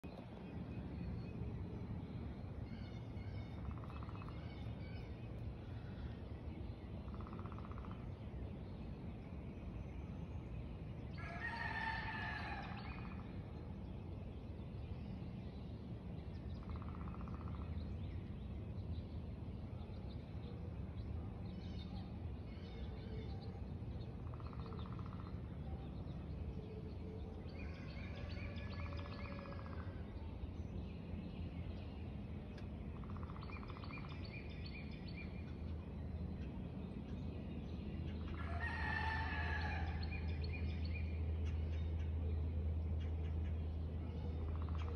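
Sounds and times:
steady low rumble: 0.0s - 44.9s
faint bird calls: 2.6s - 8.3s, 16.6s - 17.8s, 20.1s - 30.5s, 31.8s - 37.3s
rooster crowing: 11.2s - 13.0s, 38.4s - 40.2s.

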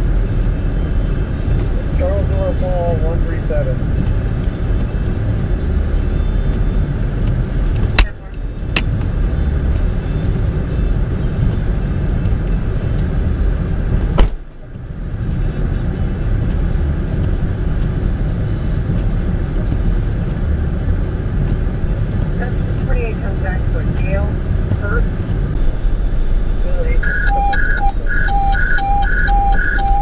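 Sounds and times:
vehicle idling: 0.0s - 30.0s.

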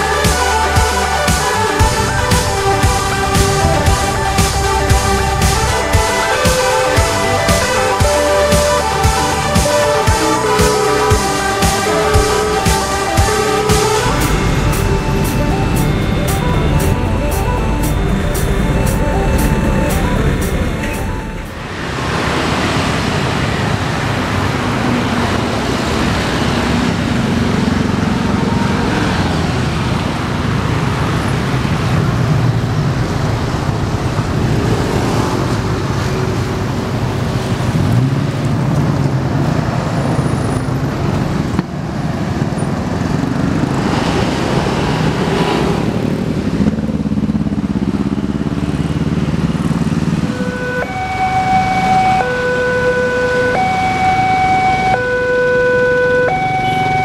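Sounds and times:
level crossing warning alarm: 0.0s - 22.2s, 50.1s - 57.0s
cars and motorcycles driving by: 0.0s - 57.0s.

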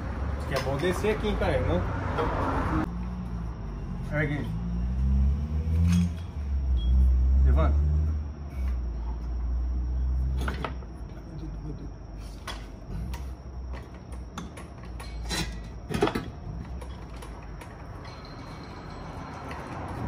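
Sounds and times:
metal clunks and knocks: 10.4s - 11.0s, 12.4s - 20.0s.

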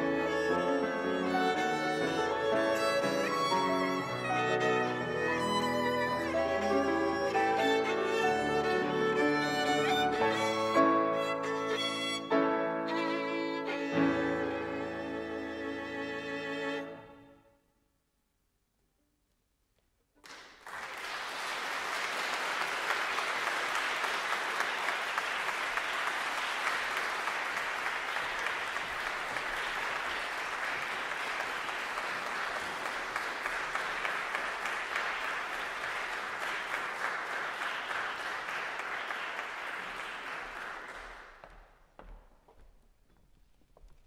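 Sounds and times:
audience applauding: 0.0s - 12.1s, 20.2s - 41.8s.

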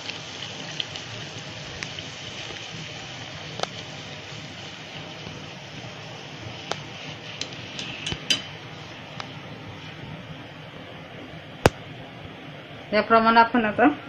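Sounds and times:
hot oil sizzling: 0.0s - 13.6s
metal skimmer clinking against pan: 7.4s - 8.6s.

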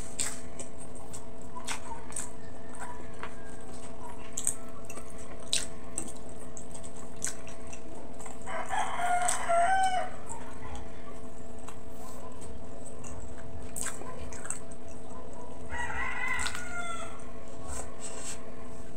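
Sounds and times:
lip smacks and chewing: 0.0s - 8.5s, 9.2s - 9.5s, 11.6s - 15.6s, 16.3s - 16.7s
steady low hum: 0.0s - 18.9s
rooster crowing: 2.4s - 3.9s, 8.4s - 10.3s, 15.7s - 17.3s.

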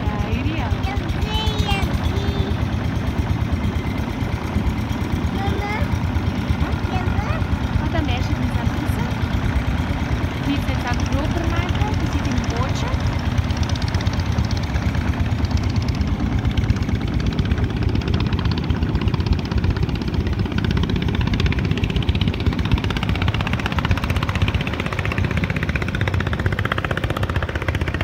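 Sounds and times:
boat engine running: 0.0s - 28.0s.

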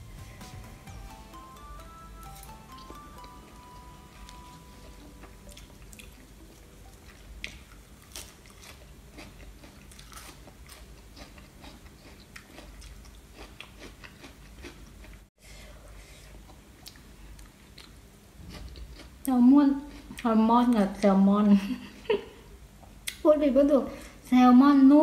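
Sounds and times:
person chewing crunchy vegetables: 2.2s - 15.3s, 16.3s - 19.3s.

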